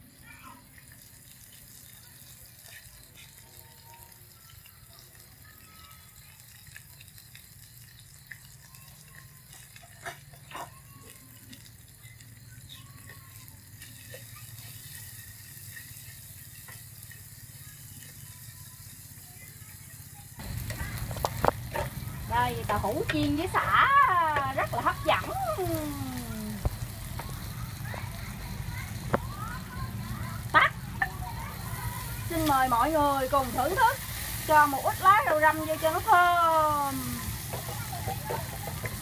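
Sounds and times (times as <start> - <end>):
food sizzling in oil: 0.0 - 39.0.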